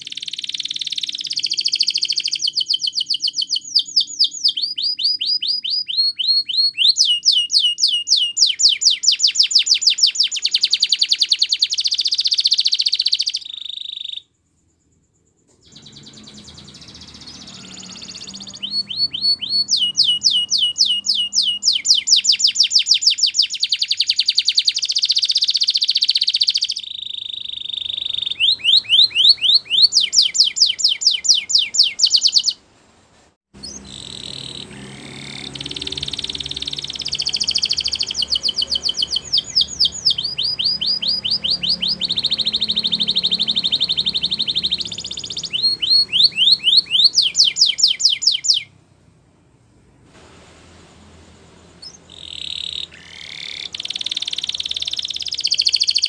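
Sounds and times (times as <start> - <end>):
canary singing trills: 0.0 - 32.6, 33.6 - 48.8, 51.8 - 56.0.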